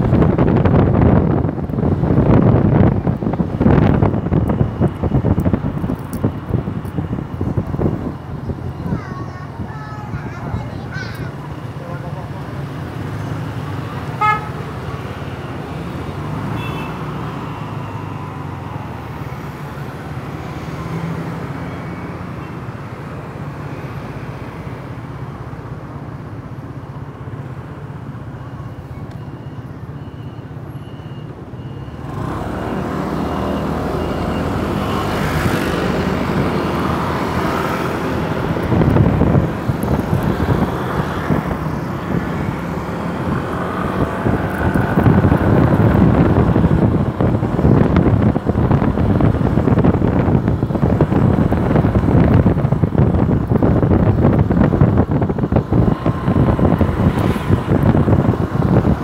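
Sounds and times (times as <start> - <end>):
wind noise: 0.0 - 11.5, 31.4 - 59.0
vehicle horn toot: 14.2 - 14.7, 16.6 - 17.1.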